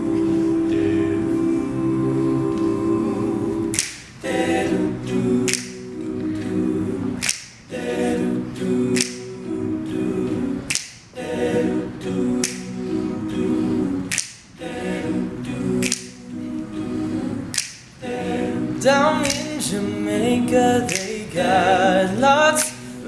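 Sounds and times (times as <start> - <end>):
male group singing in close harmony: 0.0 - 23.0
sharp snap-like hit: 7.2 - 7.7.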